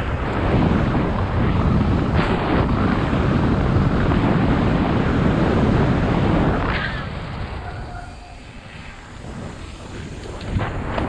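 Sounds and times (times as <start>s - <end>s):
tyres rumbling on asphalt: 0.0s - 11.0s
wind rushing over microphone: 0.0s - 11.0s.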